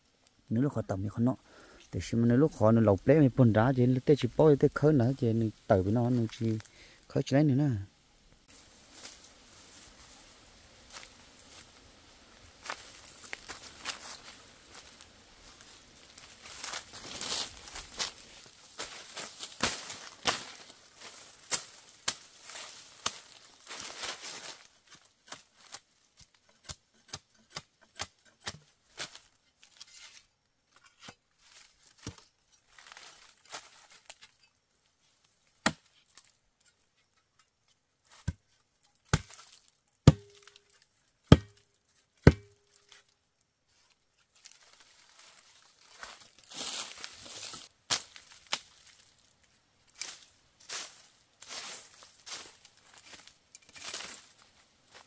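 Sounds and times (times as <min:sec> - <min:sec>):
machete cutting wooden stick: 0:26.5 - 0:28.7, 0:35.6 - 0:35.9, 0:40.0 - 0:40.6, 0:41.2 - 0:41.6, 0:42.2 - 0:42.6.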